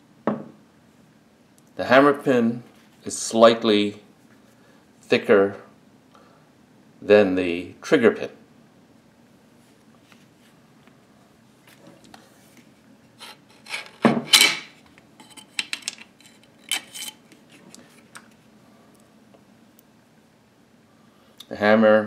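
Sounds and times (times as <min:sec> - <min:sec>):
metal scrape: 0:13.2 - 0:15.6, 0:16.2 - 0:17.6
small steel parts clicking and clanking: 0:13.2 - 0:17.2.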